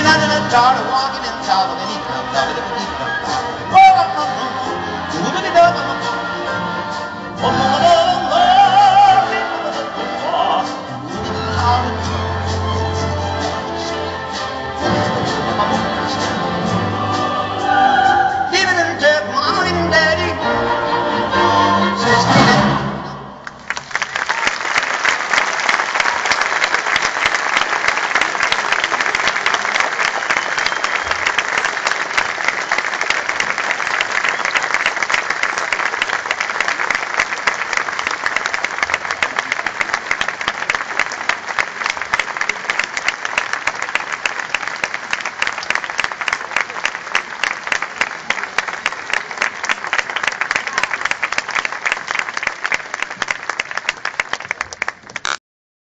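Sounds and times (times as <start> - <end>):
audience applauding: 23.4 - 55.4.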